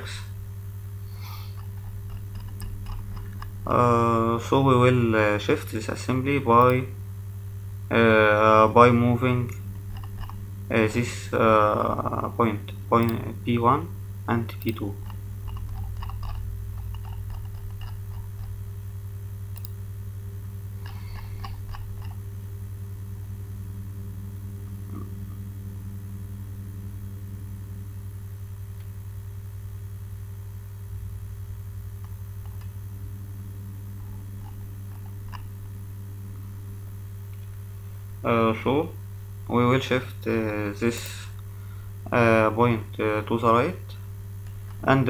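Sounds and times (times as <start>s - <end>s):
electrical mains hum: 0.0s - 45.0s
faint clicks: 19.5s - 19.8s.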